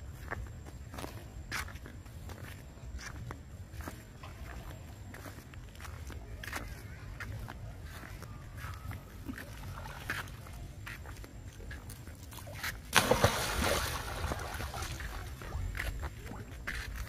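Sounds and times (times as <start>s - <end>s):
water sloshing: 9.1s - 17.0s
splash in pool water: 12.3s - 15.6s.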